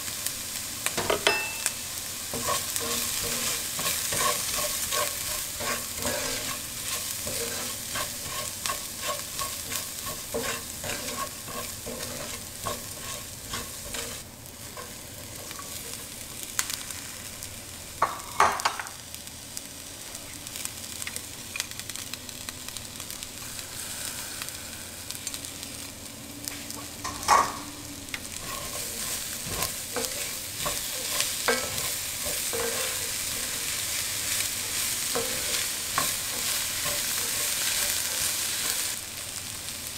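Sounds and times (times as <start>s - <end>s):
food sizzling in pan: 0.0s - 39.9s
wooden spoon scraping pan: 2.3s - 15.9s, 28.4s - 38.9s.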